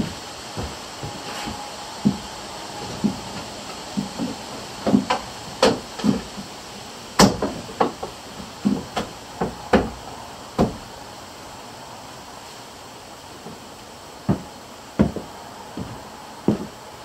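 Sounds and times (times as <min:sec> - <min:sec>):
hammering on wood: 0:00.0 - 0:06.5, 0:07.2 - 0:10.0, 0:10.6 - 0:10.9, 0:14.3 - 0:16.8.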